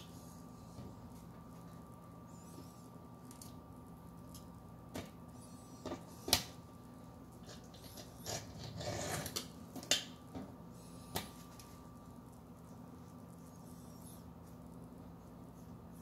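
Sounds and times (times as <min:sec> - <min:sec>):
knife scraping: 0:07.4 - 0:09.5.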